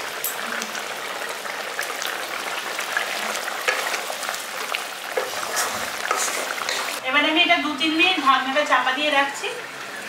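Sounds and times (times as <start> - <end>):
curry bubbling and sizzling in pan: 0.0 - 7.0
wooden spatula stirring: 5.1 - 7.0.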